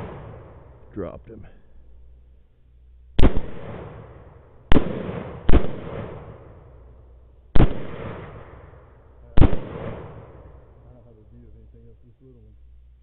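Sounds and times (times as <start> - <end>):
rifle shots with rolling echo: 0.0 - 1.2, 3.0 - 11.0.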